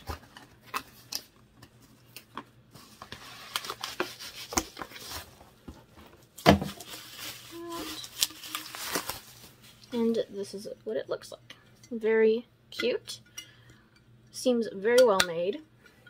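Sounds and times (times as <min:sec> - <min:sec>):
packaging crinkling and rustling: 0:00.0 - 0:10.2.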